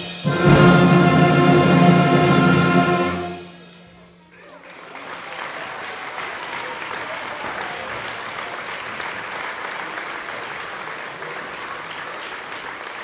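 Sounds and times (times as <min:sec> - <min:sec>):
audience applauding: 0:04.4 - 0:13.0.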